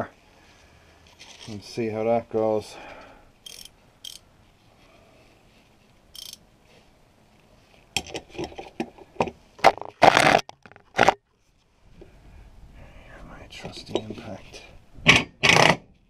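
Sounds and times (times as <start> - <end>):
ratchet spanner clicking and rattling: 3.4 - 4.2, 6.2 - 6.4.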